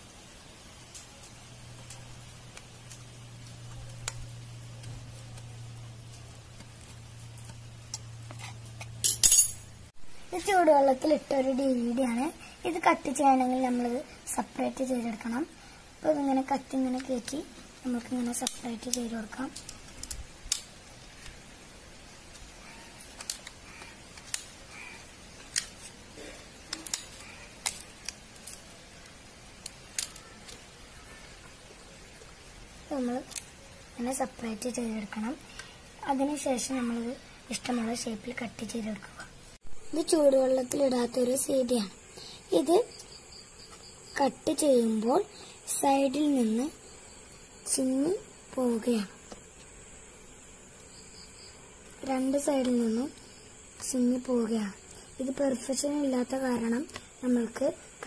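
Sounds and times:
steady low hum: 0.0 - 29.9
scissors clattering down: 9.0 - 9.6
scissors cutting plastic: 22.3 - 30.7
plastic clicking and snapping: 23.0 - 24.6, 26.6 - 28.6.

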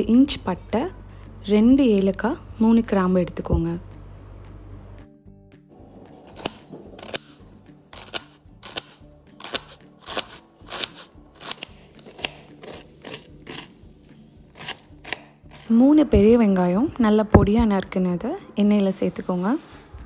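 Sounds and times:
knife chopping onion on board: 6.2 - 13.8, 14.5 - 15.7.

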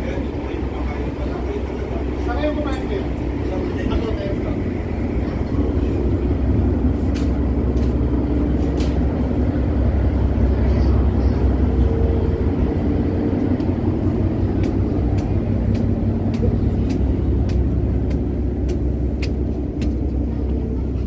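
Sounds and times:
ferry engines droning: 0.0 - 21.0.

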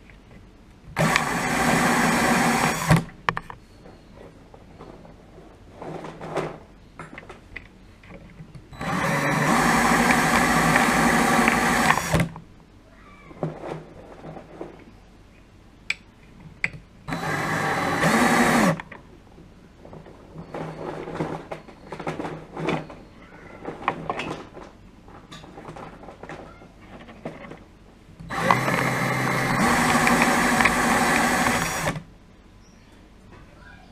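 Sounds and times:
cordless drill spinning machine: 1.0 - 3.1, 8.8 - 12.3, 17.1 - 18.8, 28.3 - 32.0.

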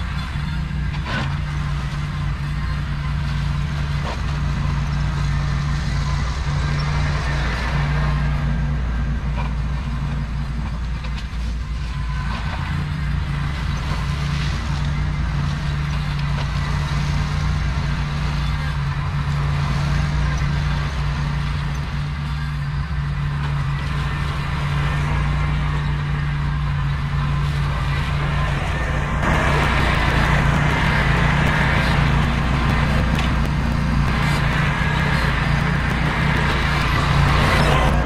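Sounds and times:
tractor engine running: 0.0 - 38.0
loud rushing noise: 27.6 - 38.0.

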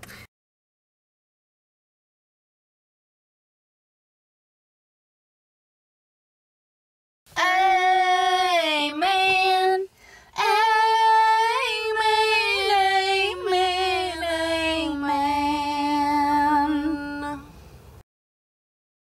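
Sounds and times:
woman singing a cappella: 7.3 - 17.6.

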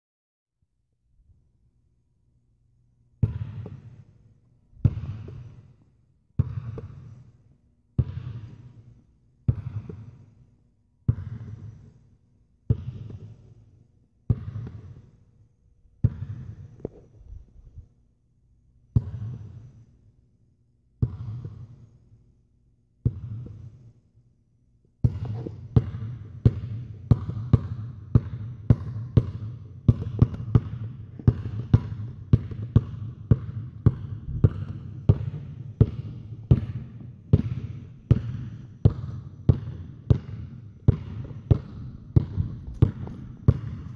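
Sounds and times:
basketball bouncing: 3.2 - 4.1, 4.8 - 5.7, 6.4 - 7.3, 8.0 - 8.9, 9.5 - 10.3, 11.1 - 11.8, 12.7 - 13.6, 14.3 - 15.2, 16.0 - 17.1, 19.0 - 19.6, 21.0 - 21.8, 23.1 - 23.7, 25.0 - 43.9.

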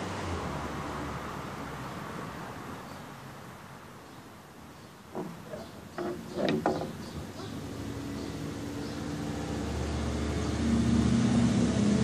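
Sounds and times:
short squeaks: 5.2 - 7.6.

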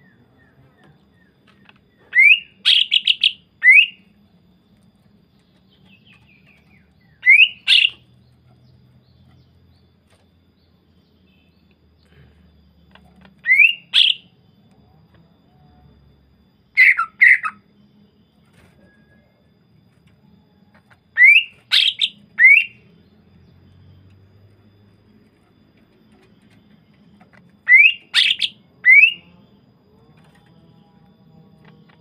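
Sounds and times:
bird calling with whistles: 2.0 - 4.1, 6.7 - 8.1, 13.4 - 14.3, 16.7 - 17.7, 21.2 - 23.0, 27.6 - 29.4.

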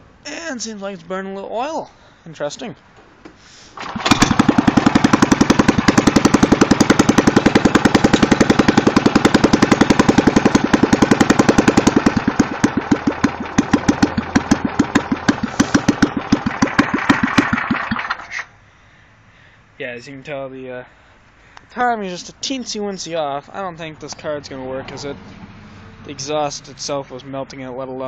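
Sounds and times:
snowblower engine running roughly: 3.8 - 18.3.

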